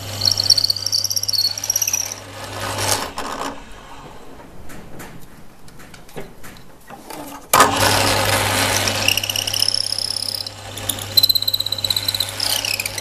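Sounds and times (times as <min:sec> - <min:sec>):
high whine of wood cutting: 0:00.0 - 0:03.5, 0:07.7 - 0:13.0
woodworking machine motor hum: 0:00.0 - 0:04.2, 0:07.6 - 0:13.0.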